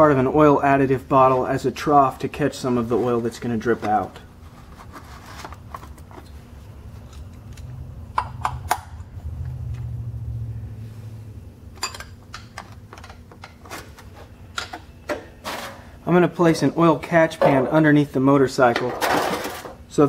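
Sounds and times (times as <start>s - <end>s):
low rumble: 8.9s - 11.6s.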